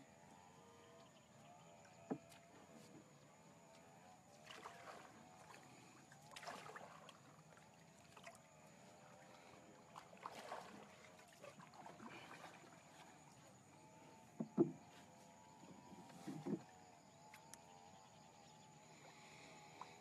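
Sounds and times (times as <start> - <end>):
paddle splashing in water: 4.4 - 13.6.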